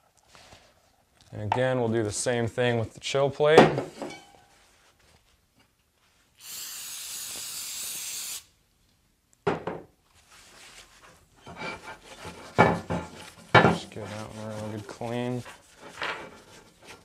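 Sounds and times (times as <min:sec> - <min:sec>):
aerosol can spraying: 0:06.4 - 0:08.5
paper towel rubbing on metal: 0:10.3 - 0:17.0.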